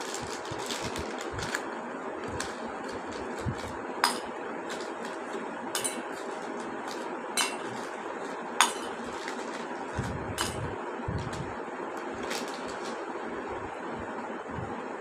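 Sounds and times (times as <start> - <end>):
mothballs clinking into metal bowl: 5.8 - 8.0, 8.6 - 9.8, 10.4 - 10.7.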